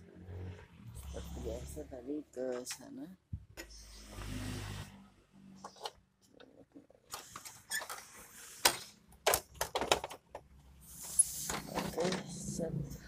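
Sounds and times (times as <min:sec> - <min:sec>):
plastic and metal parts clicking: 0:07.1 - 0:10.5.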